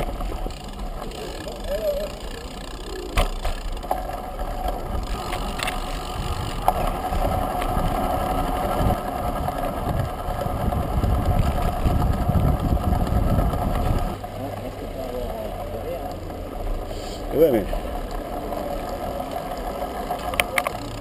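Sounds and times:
rolling bike hum: 0.0s - 21.0s
wind buffeting microphone: 3.9s - 14.2s.

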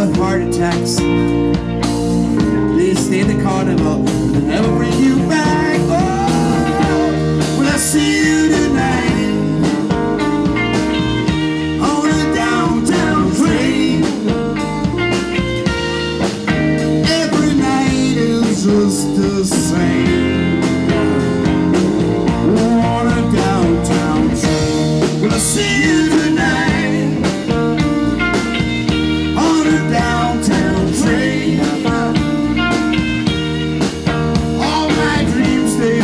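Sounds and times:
drums with steady beat: 0.0s - 36.0s
electric guitar: 0.0s - 36.0s
keyboards: 0.0s - 36.0s.

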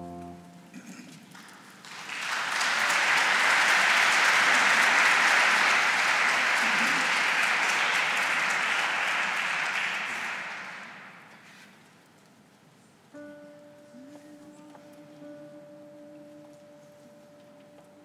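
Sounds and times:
audience applauding: 1.3s - 11.4s.

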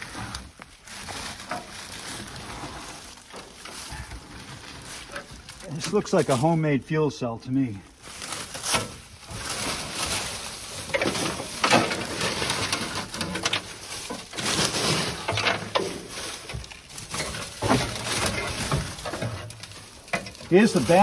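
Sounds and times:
hands rustling through debris: 0.0s - 6.7s, 7.9s - 21.0s.

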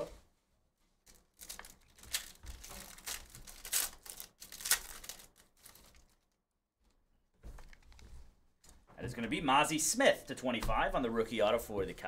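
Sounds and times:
foil wrapper tearing and crinkling: 1.0s - 6.3s.

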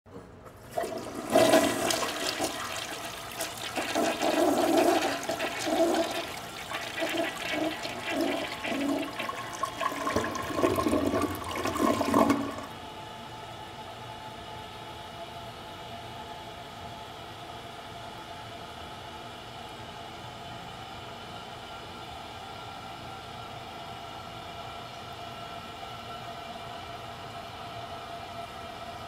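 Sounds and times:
toilet flushing: 0.4s - 12.8s.

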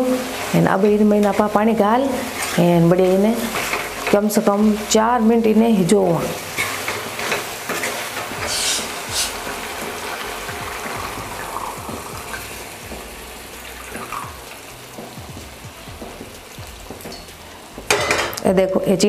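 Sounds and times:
water splashing into a pan: 8.1s - 15.2s.

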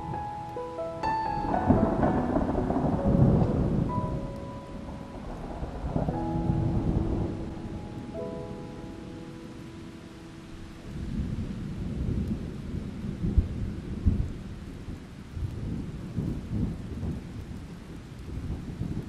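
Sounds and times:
steady rain: 0.0s - 19.0s
thunder rumbling: 0.0s - 19.0s.

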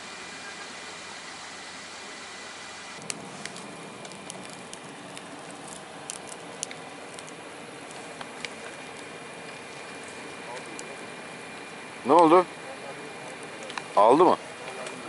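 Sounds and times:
fire hissing: 0.0s - 15.0s
campfire crackling and popping: 3.0s - 15.0s.

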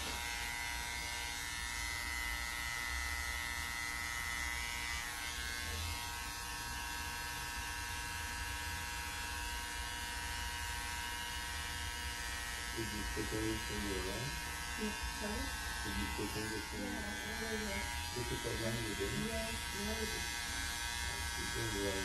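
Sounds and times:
electric hair clippers buzzing: 0.0s - 22.0s.

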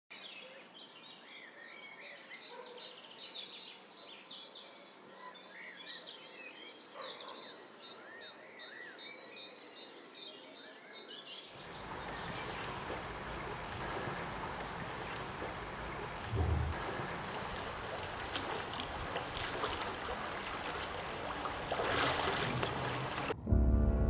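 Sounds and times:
birds singing and chirping: 10.6s - 23.4s
even rushing noise: 11.8s - 18.3s.

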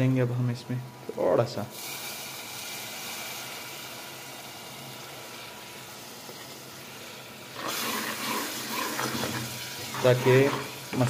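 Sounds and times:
masala sizzling in a pot: 0.0s - 11.0s
water pouring: 7.6s - 10.7s.

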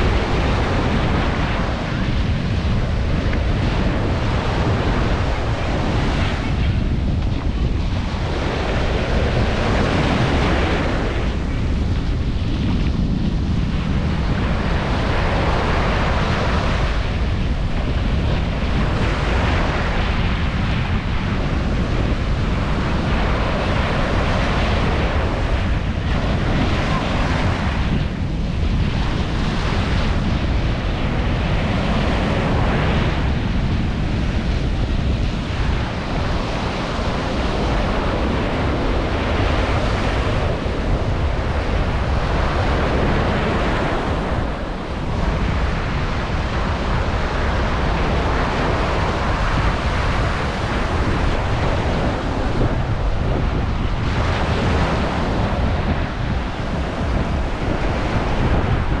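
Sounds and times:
waves breaking on sand: 0.0s - 59.0s
wind buffeting microphone: 0.0s - 59.0s.

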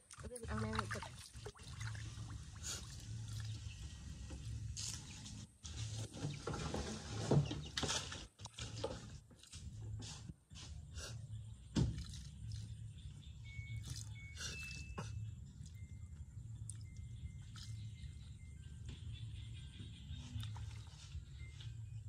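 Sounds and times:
water splashing in a plastic basin: 0.0s - 5.2s, 5.8s - 9.9s, 11.7s - 12.9s, 13.7s - 14.2s, 20.3s - 21.3s.

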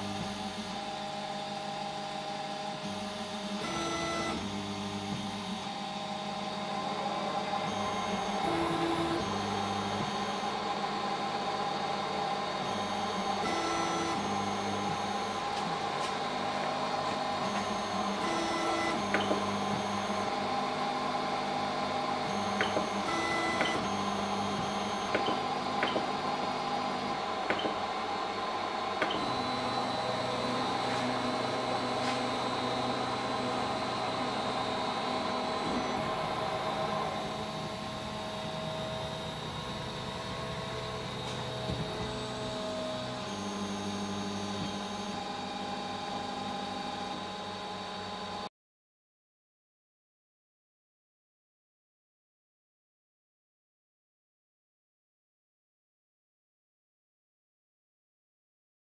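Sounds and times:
stepper motors whining: 22.3s - 45.2s.

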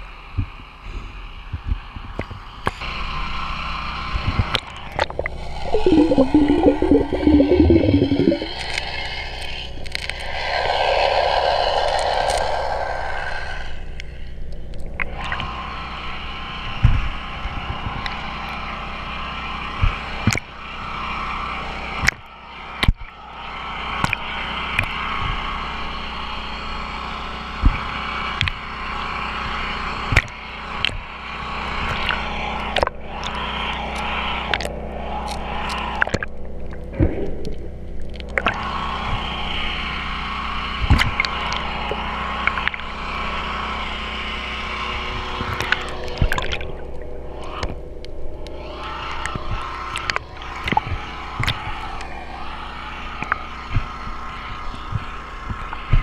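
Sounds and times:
muffled underwater rush: 4.9s - 9.1s
faint low hum: 5.2s - 8.8s.

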